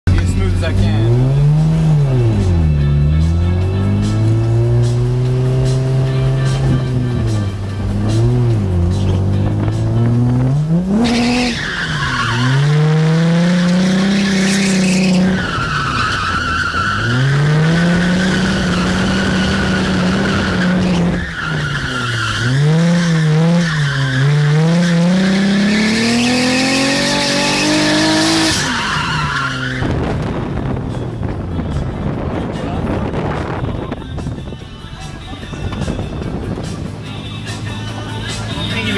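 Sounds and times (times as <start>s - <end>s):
car engine revving hard: 0.1s - 29.2s
tyres squealing: 11.0s - 29.9s.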